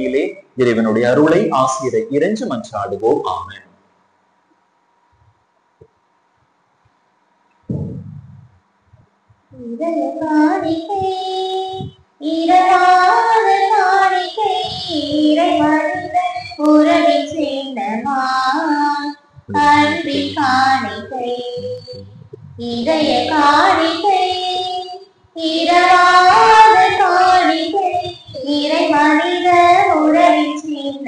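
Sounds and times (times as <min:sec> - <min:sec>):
high voices singing a hymn: 0:09.6 - 0:31.0
short low sound: 0:21.6 - 0:23.5.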